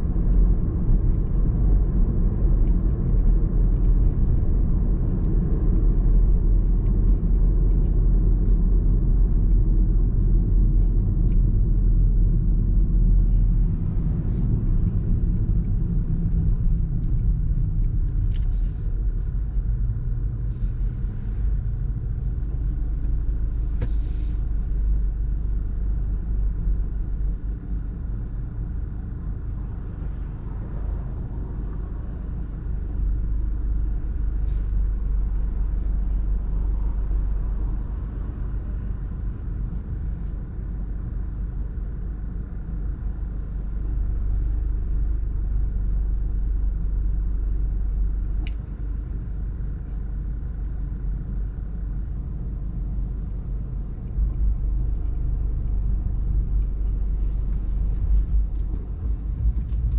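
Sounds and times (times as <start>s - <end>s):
car driving rumble: 0.0s - 59.9s.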